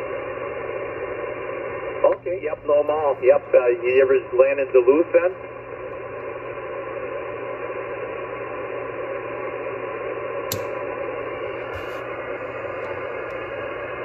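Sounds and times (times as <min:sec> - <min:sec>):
radio static hiss: 0:00.0 - 0:14.0
sharp click: 0:10.5 - 0:10.8.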